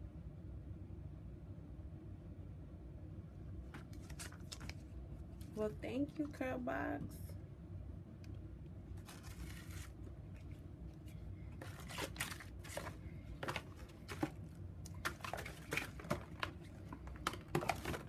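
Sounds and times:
tissue paper rustling: 3.7 - 5.7, 9.0 - 14.4.

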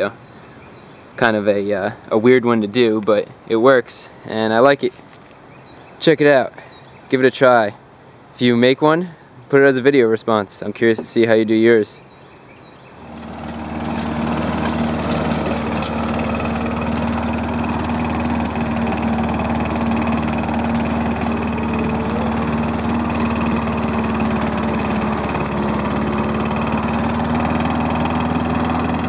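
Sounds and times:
lawn mower engine running: 13.0 - 29.0.

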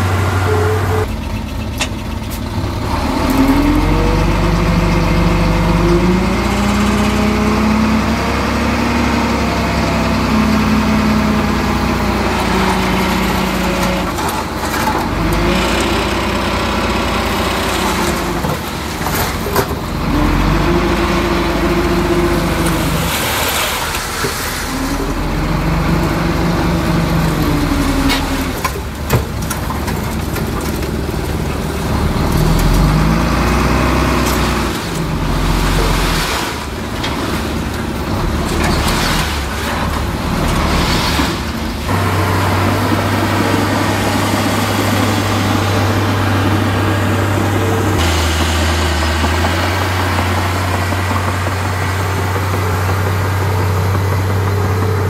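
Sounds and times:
diesel engine working hard: 0.0 - 55.0.

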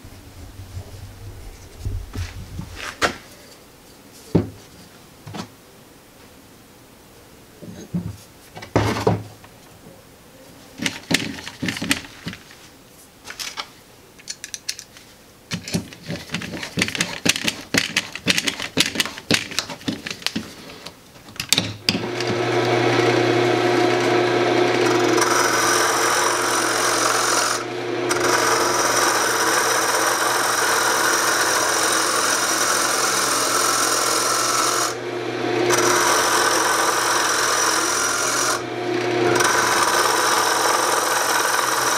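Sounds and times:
turning tool scraping wood: 10.8 - 12.6, 15.5 - 20.9, 21.9 - 41.9
clicks and knocks of handled tools: 13.3 - 22.3
lathe motor hum: 21.9 - 41.9.

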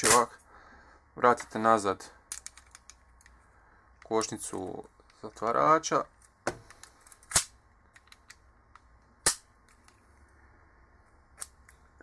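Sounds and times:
metallic clicks of pistol parts: 2.3 - 3.4, 6.2 - 10.0.

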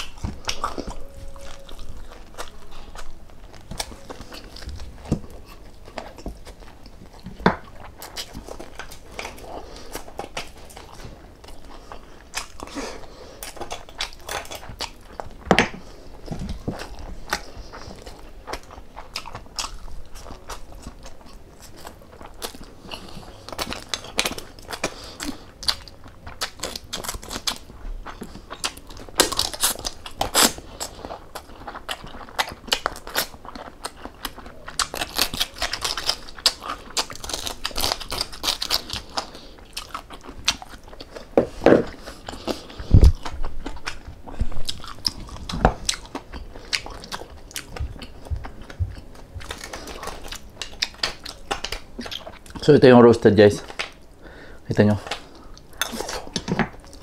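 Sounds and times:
person chewing crispy food: 0.0 - 57.0.

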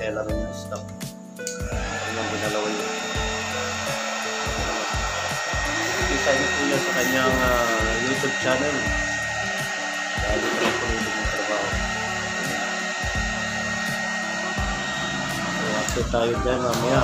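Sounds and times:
electric fan whooshing: 1.6 - 17.0
faint music: 1.7 - 17.0
thin high tone: 2.0 - 16.4.

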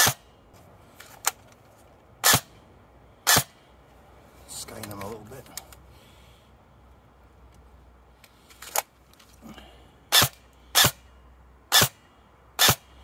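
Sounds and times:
airsoft gun single shots: 0.0 - 0.2, 2.2 - 2.5, 3.3 - 3.5, 10.1 - 11.0, 11.7 - 12.0, 12.6 - 12.8.

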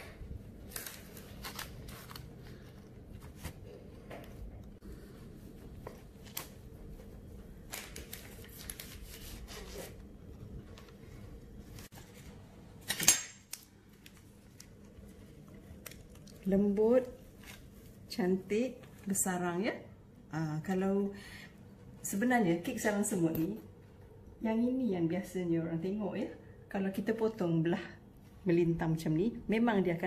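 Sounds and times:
paper rustling: 0.6 - 4.4, 5.0 - 10.0.

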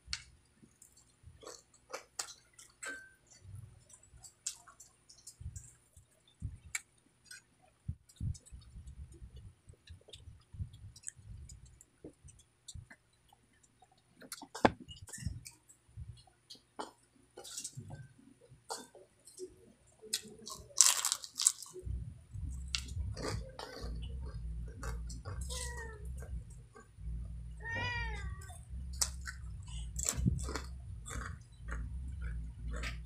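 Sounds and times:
chewing crispy chicken skin: 0.2 - 5.8, 20.1 - 21.9, 22.5 - 25.8, 29.0 - 33.0.

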